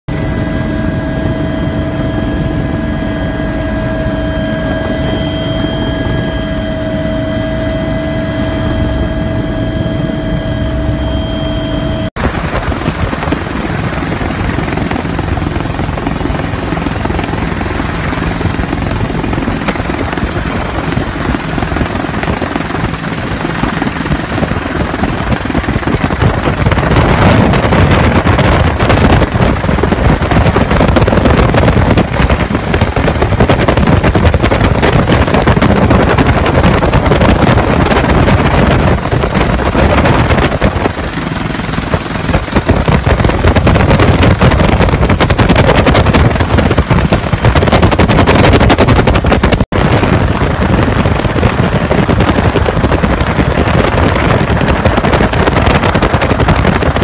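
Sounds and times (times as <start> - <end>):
helicopter engine and rotor: 0.1 - 57.0
steady whine: 0.1 - 57.0
rough rushing noise: 11.6 - 57.0.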